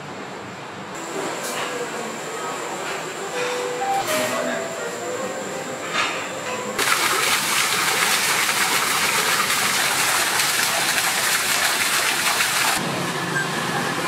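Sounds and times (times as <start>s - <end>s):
water splashing into a pond: 6.8s - 12.8s.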